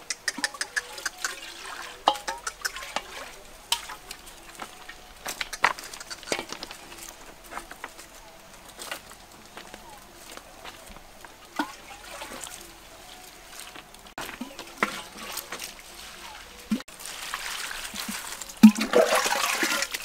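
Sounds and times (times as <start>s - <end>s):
bowl knocking: 2.0s - 4.0s
footsteps on loose stones: 2.0s - 19.0s.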